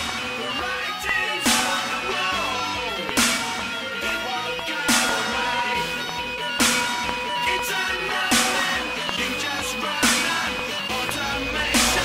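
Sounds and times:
heavy beat hit: 11.0s - 12.0s.

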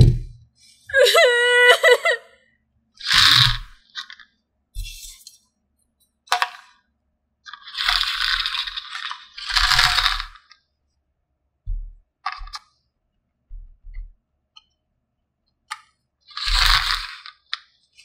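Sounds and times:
plastic pieces clattering: 3.0s - 4.3s, 6.3s - 6.8s, 7.5s - 10.6s, 12.2s - 12.7s, 15.7s - 18.0s.

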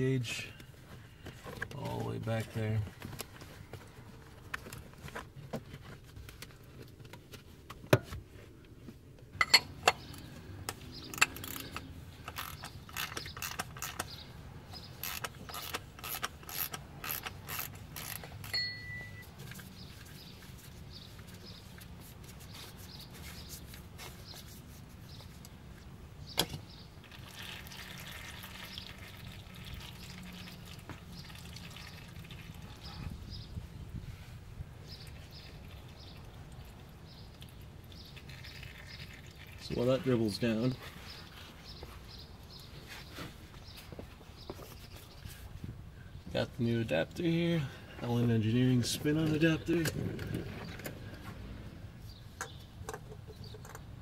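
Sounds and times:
ratchet wrench clicking: 11.1s - 14.1s, 15.0s - 18.6s
oil trickling: 27.0s - 33.2s, 34.9s - 41.4s.

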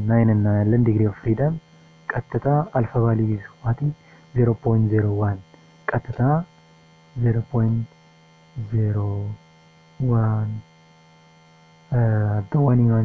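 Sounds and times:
person speaking slowly: 0.0s - 6.5s, 7.2s - 7.9s, 8.6s - 9.4s, 10.0s - 10.6s, 11.9s - 13.0s
electrical mains hum: 0.0s - 13.0s.

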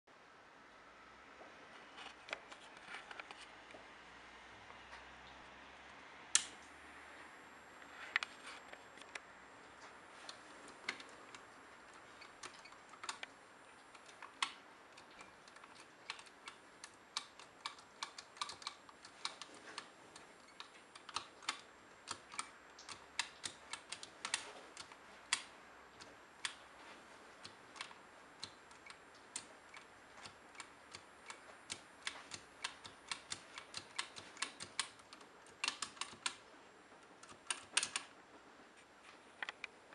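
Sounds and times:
calculator keys clicking: 14.0s - 19.9s, 27.4s - 36.4s, 37.2s - 38.1s.

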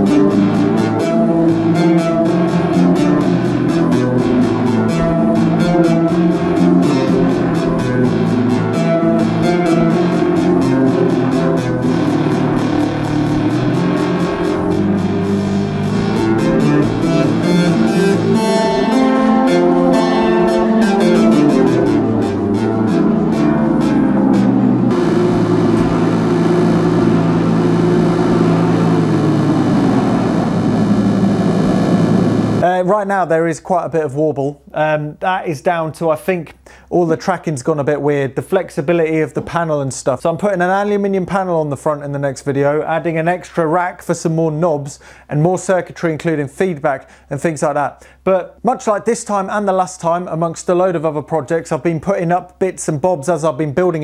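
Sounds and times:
fast even ticking pulse: 0.0s - 32.6s
tape machine whirring: 0.0s - 32.6s
synthesizer chords with echo: 0.0s - 32.7s.

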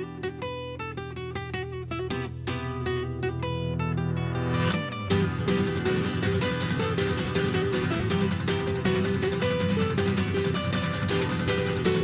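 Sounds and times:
acoustic guitar plucked notes: 0.0s - 12.0s.

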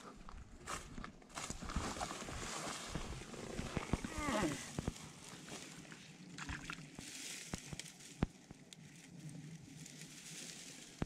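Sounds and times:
rustling among wet reeds: 0.7s - 11.0s
water sloshing: 1.6s - 7.2s.

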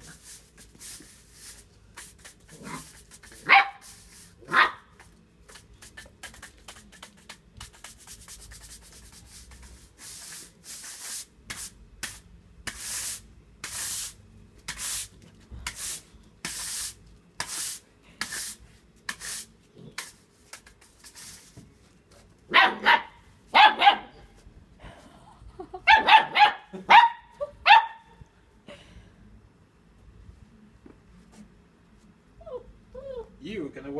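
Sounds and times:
broom scraping ground: 0.0s - 4.6s, 7.6s - 22.4s
high-pitched puppy yaps: 3.4s - 3.8s, 4.4s - 4.9s, 22.5s - 24.3s, 25.9s - 28.2s
puppy barking: 3.4s - 4.9s, 22.5s - 24.3s, 25.9s - 28.1s.

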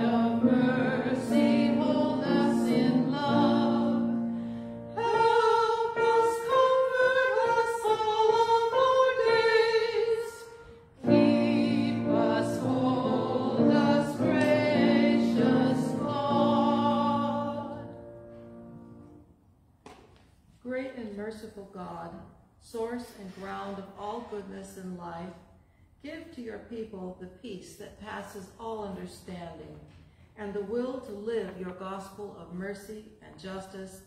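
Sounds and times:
women singing a hymn in parts: 0.0s - 19.1s
single higher voice singing: 4.9s - 18.0s.

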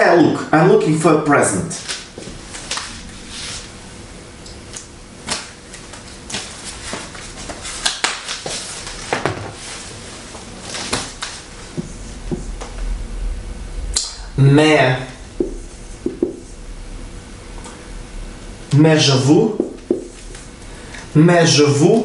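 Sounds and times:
paper rustling: 5.3s - 11.5s
marker writing on whiteboard: 15.4s - 16.5s, 19.6s - 20.2s.

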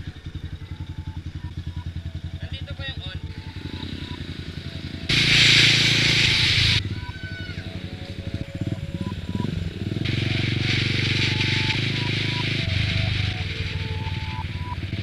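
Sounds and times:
motorcycle engine running: 0.0s - 15.0s
loud rushing hiss: 5.1s - 6.8s, 10.0s - 14.2s.

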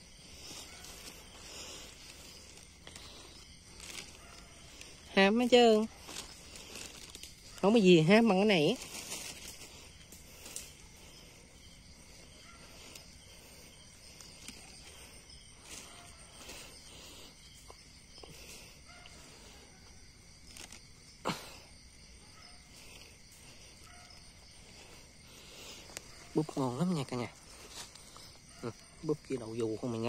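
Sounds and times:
hands rustling dry leaves: 0.0s - 21.6s
insect chirring: 0.0s - 30.0s.

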